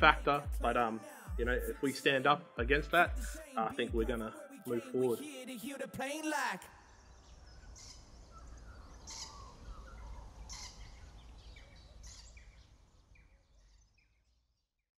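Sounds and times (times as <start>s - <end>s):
bird chirps: 6.8s - 14.9s.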